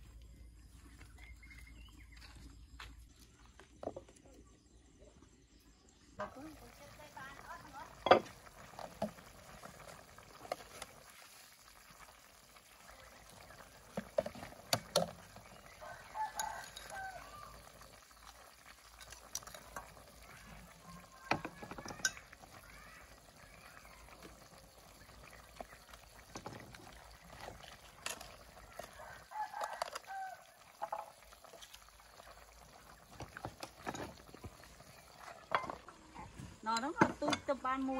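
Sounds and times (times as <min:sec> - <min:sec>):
utensils and jars clinking: 0:21.6 - 0:22.3.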